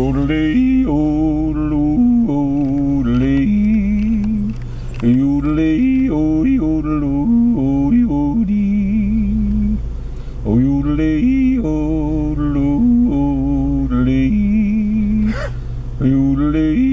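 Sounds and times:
man yodeling: 0.0 - 4.3, 10.6 - 16.9.

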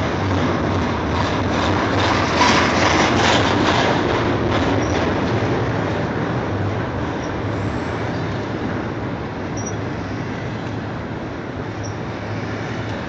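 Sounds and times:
freight train wheels rumbling: 0.0 - 13.0
faint high squeaks: 9.6 - 9.8.

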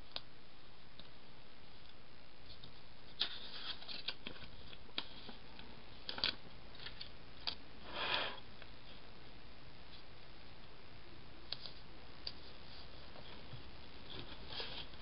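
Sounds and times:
paper clicks and crinkles: 1.8 - 7.6, 11.5 - 15.0
paper rustling: 2.5 - 5.4, 11.5 - 15.0.

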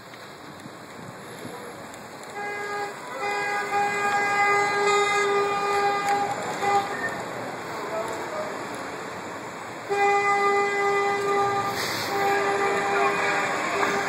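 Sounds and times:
street traffic hiss: 0.0 - 14.0
vehicle horn honking: 2.3 - 7.2, 9.9 - 14.0.

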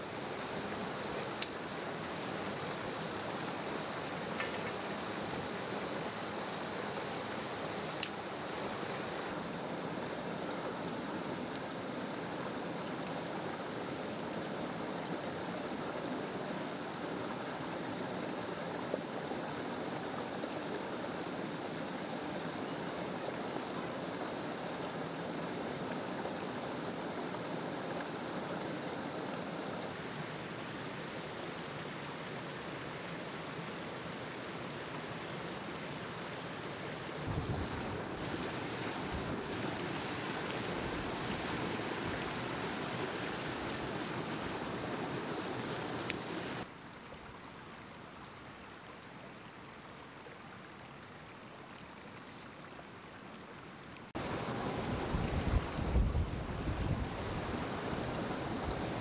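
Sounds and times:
stream running over rocks: 0.0 - 59.0
wind buffeting microphone: 37.3 - 39.6, 54.9 - 57.6.

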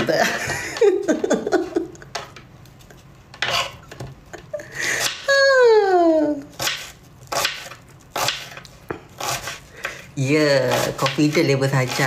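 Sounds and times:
woman laughing: 0.0 - 2.2, 4.2 - 6.5.

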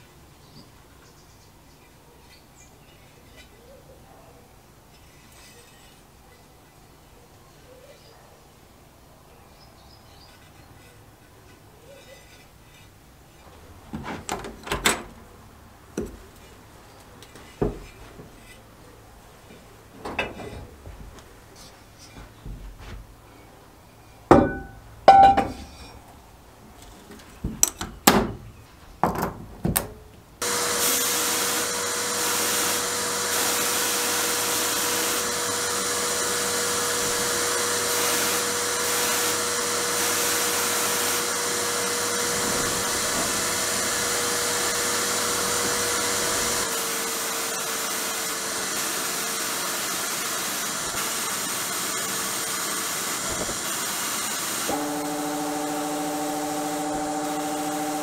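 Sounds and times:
knocks and clunks of iron pot: 24.3 - 25.7
sandblasting hiss: 30.4 - 58.0.

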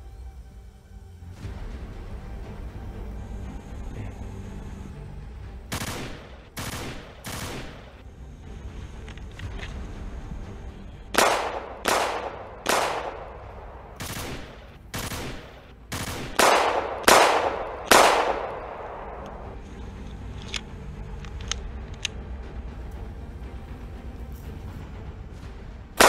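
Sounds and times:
loud shots: 5.7 - 8.0, 11.2 - 19.6
faint sharp clicks: 17.9 - 22.2.

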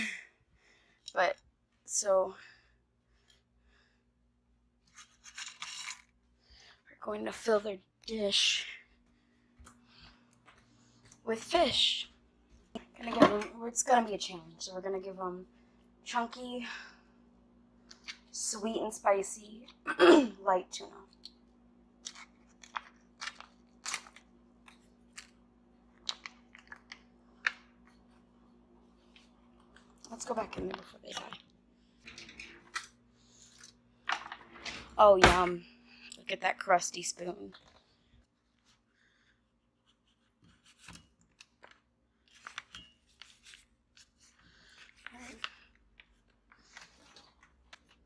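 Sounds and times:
packet crinkling: 22.0 - 27.7.

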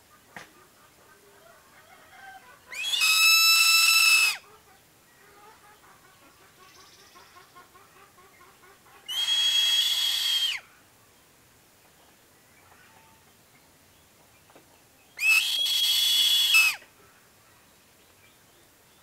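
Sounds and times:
eagle screaming: 2.7 - 4.4, 9.1 - 10.6, 15.2 - 16.8.

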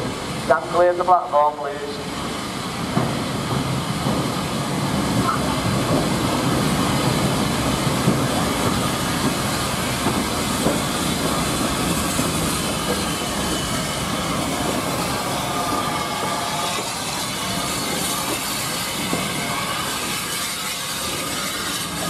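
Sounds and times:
steam hissing: 0.0 - 22.0
train wheels rumbling: 0.0 - 22.0.

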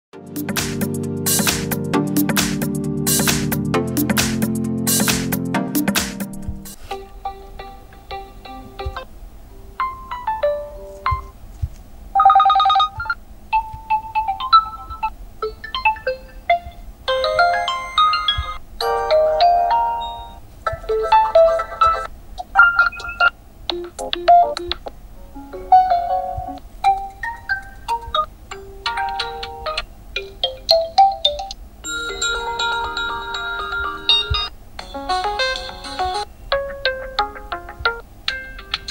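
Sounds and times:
phone ringtone melodies: 9.8 - 11.3, 12.2 - 24.6, 25.6 - 38.9.

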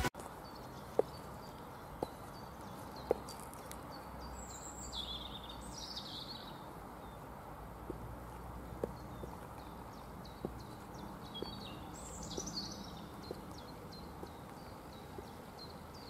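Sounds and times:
birds chirping: 0.0 - 16.0
high heels clicking on asphalt: 0.1 - 4.2, 7.4 - 16.0.

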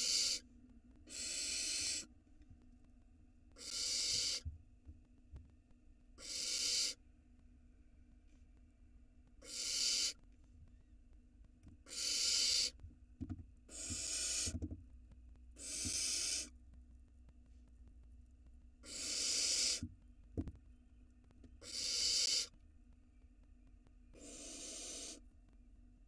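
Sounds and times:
owl nestlings hissing: 0.0 - 0.4, 1.1 - 2.1, 3.6 - 4.4, 6.2 - 7.0, 9.4 - 10.2, 11.9 - 12.8, 13.7 - 14.6, 15.6 - 16.6, 18.8 - 19.8, 21.6 - 22.5, 24.2 - 25.2.

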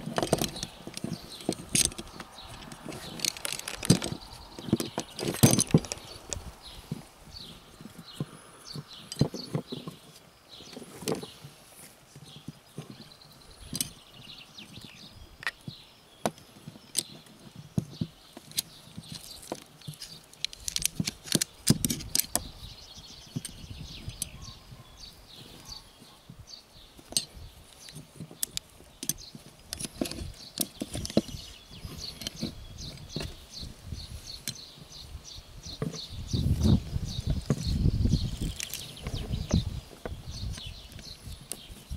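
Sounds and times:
pulleys and carabiners clinking: 0.0 - 6.4, 27.0 - 33.4
rope threaded through pulleys: 0.0 - 11.4.

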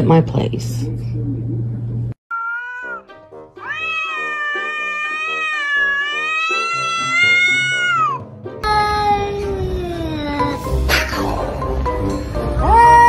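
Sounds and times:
cat yowling: 2.3 - 8.2, 12.6 - 13.0.

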